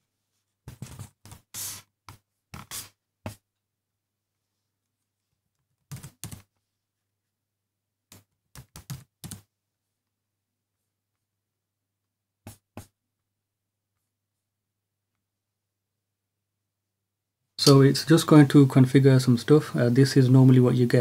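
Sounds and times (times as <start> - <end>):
laptop keyboard typing: 5.8 - 6.6, 8.1 - 9.5.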